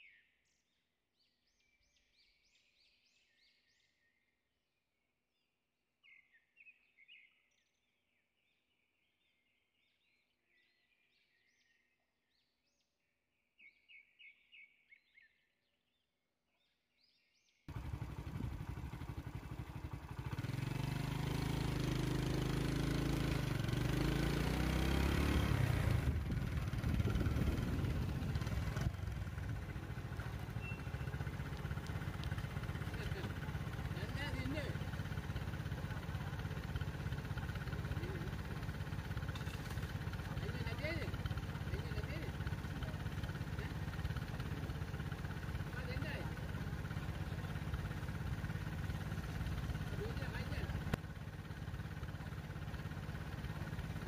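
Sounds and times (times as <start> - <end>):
birds chirping: 5.4 - 54.0
vehicle engine idling: 17.7 - 54.0.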